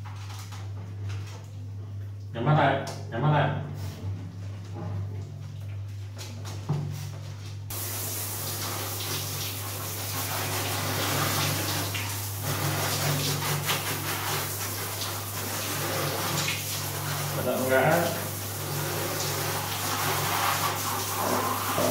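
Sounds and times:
shower head spraying water: 0:07.7 - 0:21.9
water splashing on tiled floor: 0:07.7 - 0:21.9.

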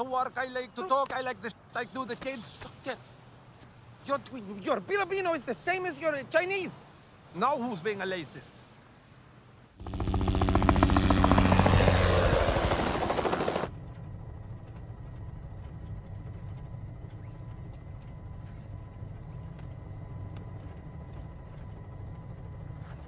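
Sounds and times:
faint high whine: 0:03.7 - 0:23.0
helicopter rotor chopping: 0:09.8 - 0:13.8
helicopter cabin hum: 0:09.8 - 0:23.0.

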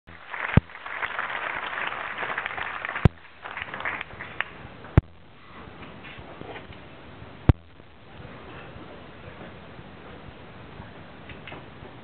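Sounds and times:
audience applauding: 0:00.1 - 0:04.6.

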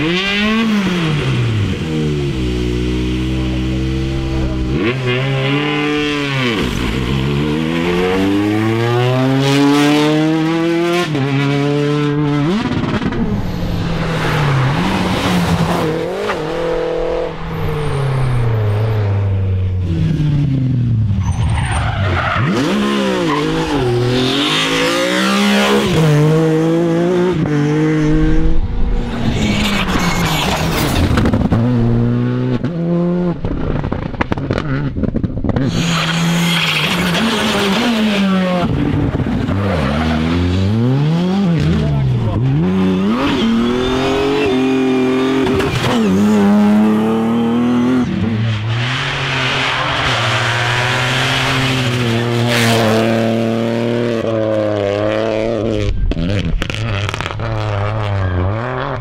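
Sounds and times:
rally car engines revving: 0:00.0 - 0:59.0
tyres squealing and skidding: 0:13.1 - 0:19.7, 0:21.1 - 0:25.9, 0:29.0 - 0:31.3, 0:35.7 - 0:38.6, 0:41.7 - 0:53.2.

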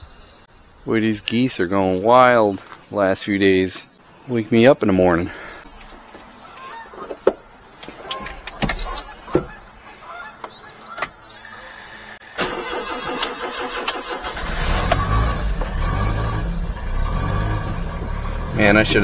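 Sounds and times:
starter cranking: 0:12.4 - 0:18.2
engine running: 0:12.4 - 0:19.0.

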